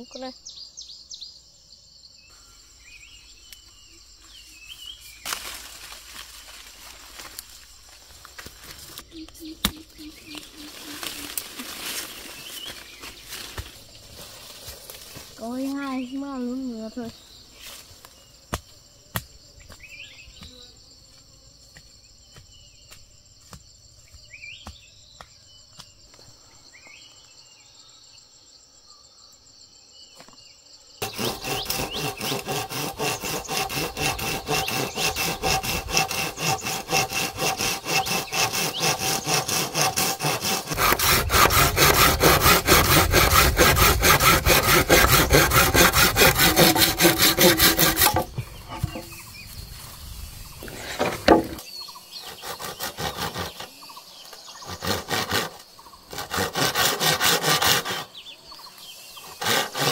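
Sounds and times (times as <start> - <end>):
insects trilling: 0.0 - 59.9
hand saw cutting wood: 9.6 - 13.7, 31.0 - 49.2, 50.6 - 53.8, 54.6 - 58.2, 59.2 - 59.9.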